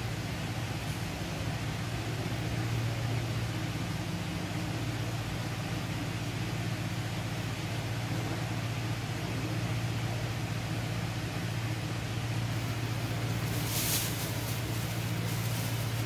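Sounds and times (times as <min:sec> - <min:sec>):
steady low hum: 0:00.0 - 0:16.0
even hiss: 0:11.7 - 0:16.0.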